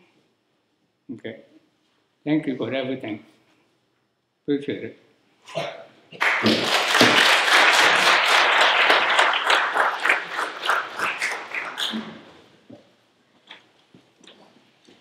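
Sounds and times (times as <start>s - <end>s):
audience applauding: 6.2s - 12.4s.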